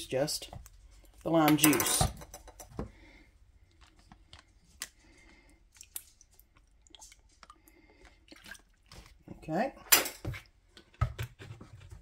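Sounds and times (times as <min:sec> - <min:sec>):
kitchen utensils clicking and tapping: 0:01.3 - 0:02.8.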